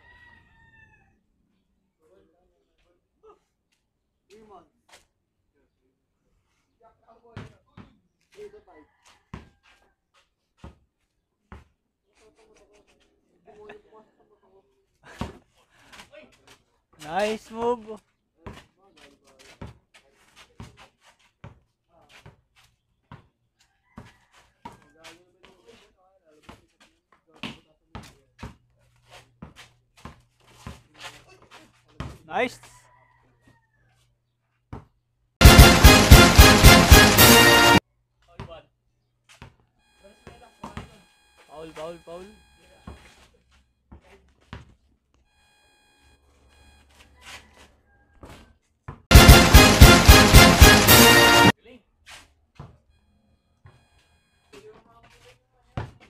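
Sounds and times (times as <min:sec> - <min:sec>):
basketball bouncing on concrete: 0:07.3 - 0:08.0, 0:09.3 - 0:09.6, 0:10.6 - 0:10.9, 0:11.5 - 0:11.8, 0:15.1 - 0:15.4, 0:18.4 - 0:18.7, 0:19.4 - 0:23.4, 0:24.0 - 0:24.8, 0:26.4 - 0:32.3, 0:34.7 - 0:36.0, 0:39.3 - 0:42.0, 0:42.8 - 0:43.3, 0:43.9 - 0:44.9, 0:48.2 - 0:49.5, 0:52.5 - 0:52.9, 0:53.6 - 0:53.8, 0:54.5 - 0:56.0.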